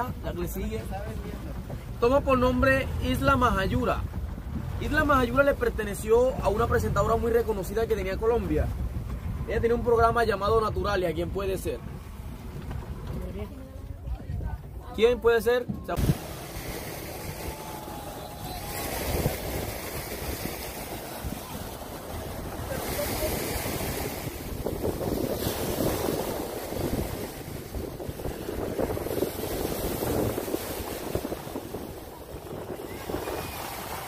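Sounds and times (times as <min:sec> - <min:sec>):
wind on microphone: 0:00.0 - 0:14.9, 0:15.6 - 0:34.0
surf washing on shore: 0:00.0 - 0:34.0
people talking in background: 0:13.0 - 0:19.9, 0:20.6 - 0:24.6.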